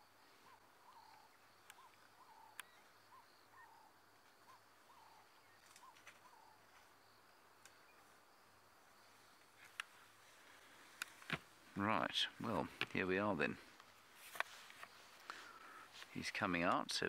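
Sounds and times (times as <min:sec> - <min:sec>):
faint insect hiss: 0:00.0 - 0:17.0.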